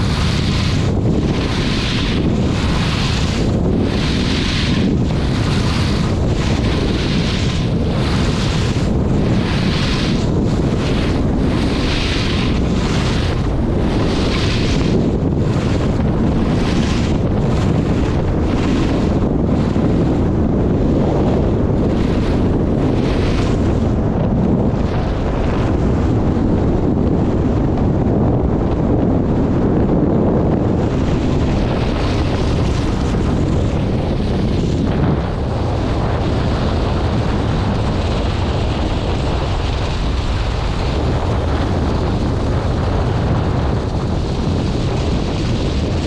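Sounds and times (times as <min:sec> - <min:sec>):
skis hissing on snow: 0:00.0 - 0:07.4
wind buffeting microphone: 0:00.0 - 0:46.0.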